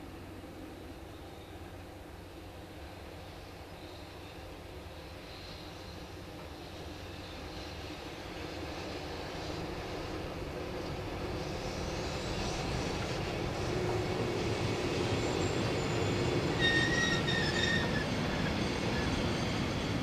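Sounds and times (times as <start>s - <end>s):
train wheels on rails: 0.0s - 20.0s
high wheel squeal: 15.2s - 19.9s.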